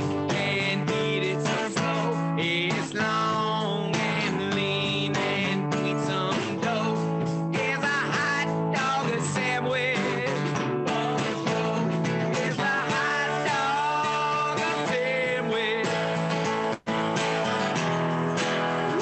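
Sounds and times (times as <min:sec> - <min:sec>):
man singing: 0:00.0 - 0:16.5
strummed acoustic guitar: 0:00.0 - 0:19.0
drum kit playing: 0:06.4 - 0:14.9, 0:15.9 - 0:19.0.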